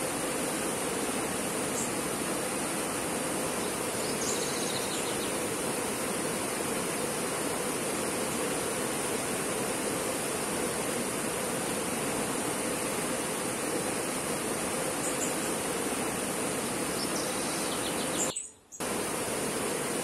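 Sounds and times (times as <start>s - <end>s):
faint high chirping: 17.0s - 18.8s.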